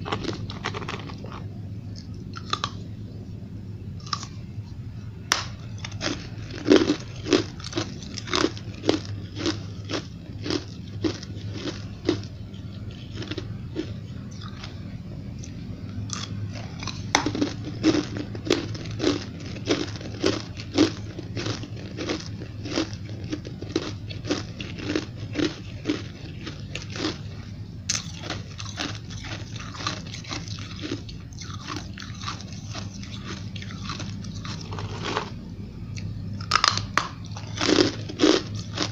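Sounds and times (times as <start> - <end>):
chewing ice crunches: 0.0 - 2.8, 4.0 - 4.4, 5.3 - 14.8, 15.4 - 35.4, 36.0 - 38.9.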